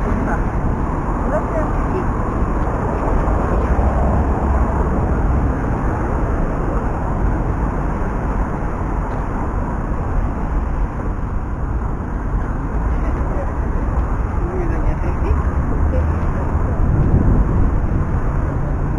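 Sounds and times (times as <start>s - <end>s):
city traffic rumble: 0.0s - 18.9s.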